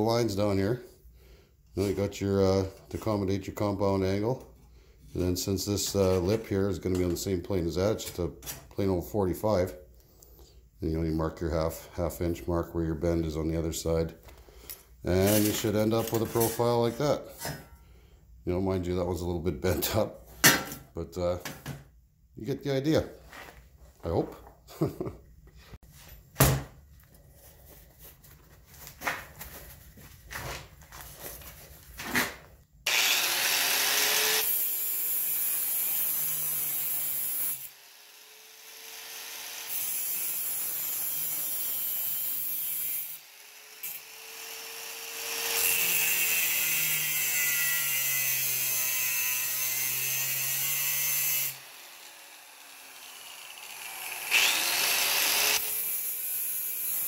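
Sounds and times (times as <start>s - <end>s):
angle grinder grinding steel: 32.9s - 57.0s.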